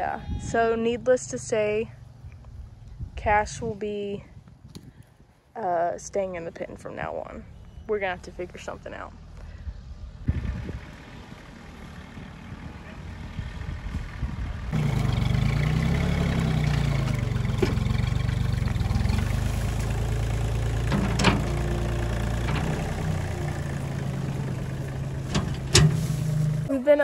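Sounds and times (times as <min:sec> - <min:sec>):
tractor engine revving: 0:10.3 - 0:26.7
loader bucket working dirt: 0:10.3 - 0:26.8.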